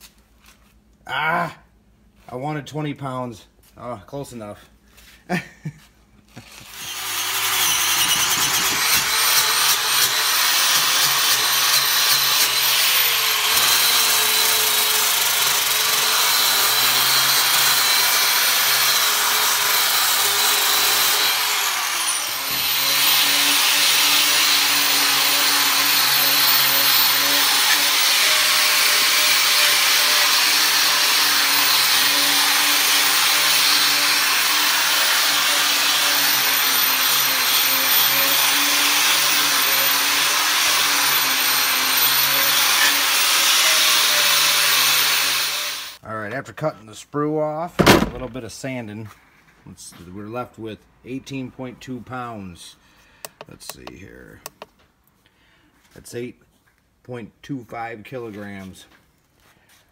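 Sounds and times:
angle grinder on metal: 0:06.4 - 0:46.0
orbital sander humming: 0:06.5 - 0:46.0.

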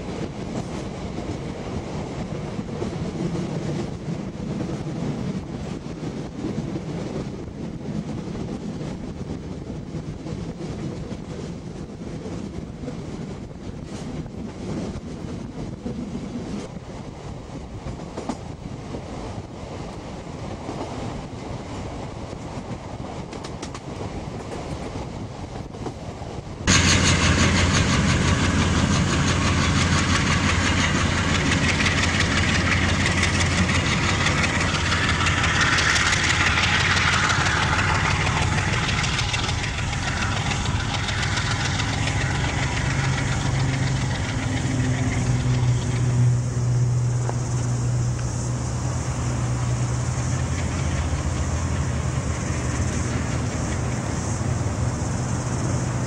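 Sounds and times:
train wheel and rail noise: 0:00.0 - 0:56.0
locomotive hum: 0:20.6 - 0:56.0.

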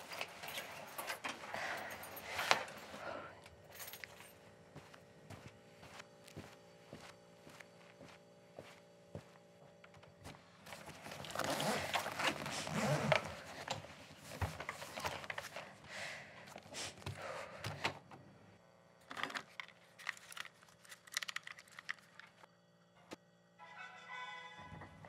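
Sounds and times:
small clicks and rattles: 0:19.0 - 0:22.5.

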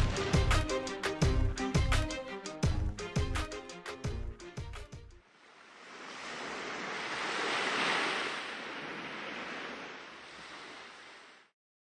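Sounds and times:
whooshing rush: 0:05.6 - 0:11.5.

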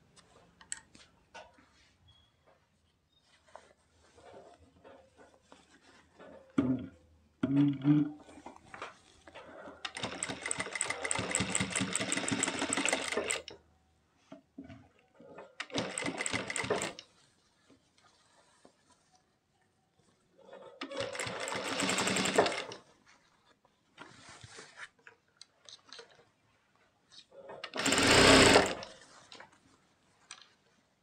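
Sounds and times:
sewing machine stitching: 0:09.8 - 0:13.5, 0:15.6 - 0:17.0, 0:20.8 - 0:22.8, 0:27.6 - 0:29.0.

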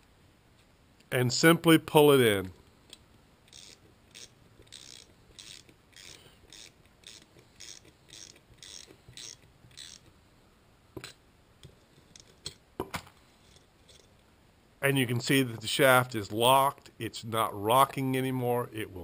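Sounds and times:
sharp metal clicks: 0:02.9 - 0:10.1
ratchet wrench clicking: 0:03.5 - 0:10.1.

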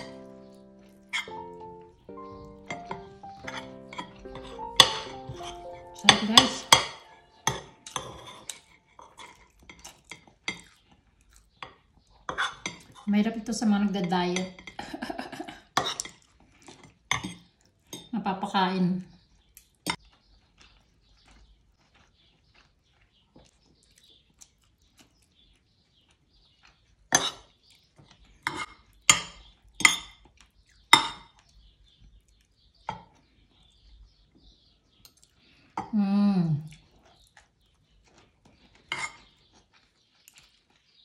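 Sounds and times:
cutlery clinking against a plate: 0:01.1 - 0:01.6, 0:02.5 - 0:10.8, 0:11.6 - 0:13.0, 0:14.4 - 0:18.1, 0:27.1 - 0:27.5, 0:28.4 - 0:30.2, 0:30.9 - 0:31.4, 0:38.8 - 0:39.4.

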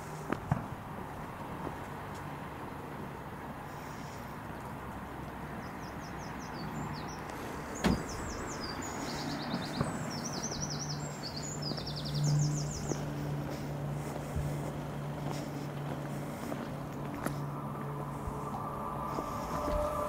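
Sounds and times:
songbird chirping: 0:05.6 - 0:20.0
steady low hum: 0:12.2 - 0:20.0.

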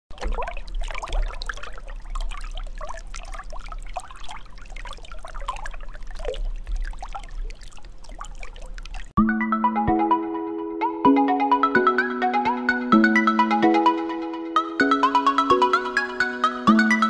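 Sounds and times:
water bubbling and trickling: 0:00.1 - 0:09.2.

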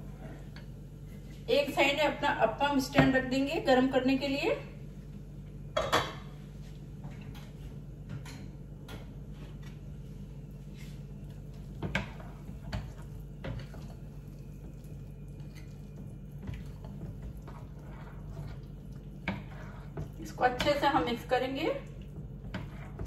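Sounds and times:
steady low hum: 0:00.0 - 0:23.0
spoon stirring thick batter: 0:10.6 - 0:23.0.

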